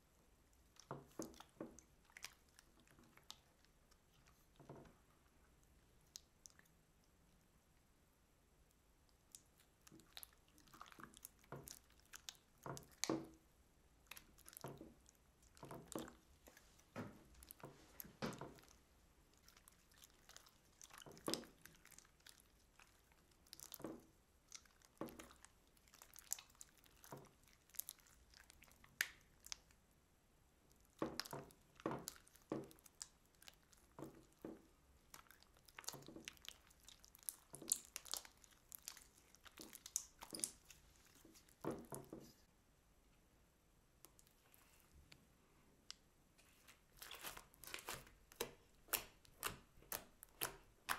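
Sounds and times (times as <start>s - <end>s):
slime squelching: 0.0s - 7.6s, 8.7s - 29.9s, 30.6s - 42.5s, 45.8s - 50.9s
small crackling pops: 14.1s - 29.8s, 30.7s - 42.4s, 46.7s - 50.9s.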